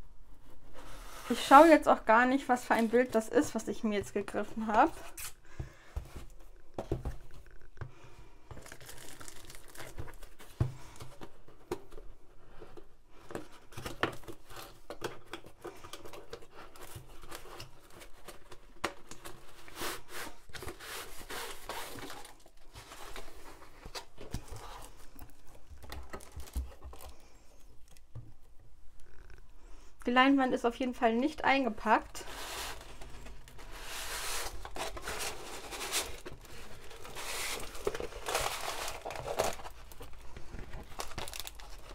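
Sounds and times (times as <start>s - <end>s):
plastic wrap crinkling and tearing: 8.5s - 10.4s, 16.2s - 28.0s, 32.2s - 41.9s
rustles and clicks of handling: 32.0s - 41.9s.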